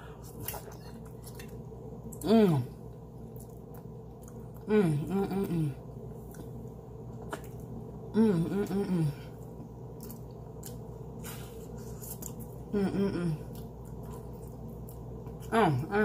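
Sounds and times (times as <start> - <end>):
low electrical hum: 0.0 - 16.0
woman humming while eating: 2.2 - 2.8, 4.6 - 5.8, 8.1 - 9.4, 12.7 - 13.7.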